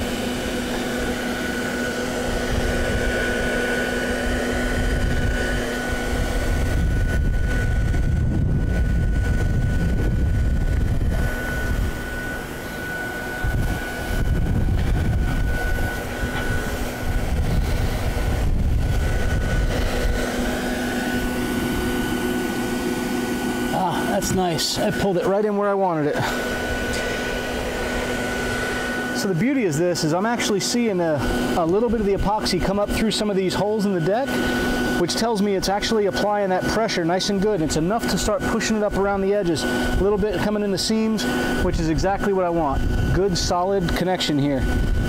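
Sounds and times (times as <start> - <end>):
vacuum pump whining: 0.0 - 45.0
low rumble: 13.4 - 20.2.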